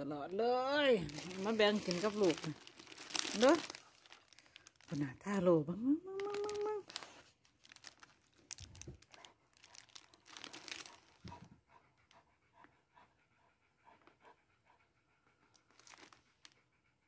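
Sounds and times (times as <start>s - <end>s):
dogs panting: 0.4s - 4.4s, 9.0s - 17.0s.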